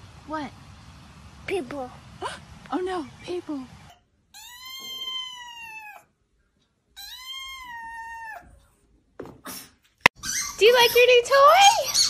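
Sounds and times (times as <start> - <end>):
kitten meowing: 4.4 - 6.0, 7.0 - 8.4.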